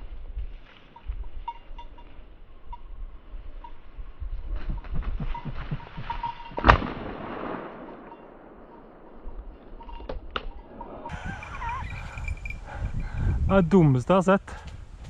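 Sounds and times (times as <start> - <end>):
shotgun shot echoing: 6.6 - 9.2.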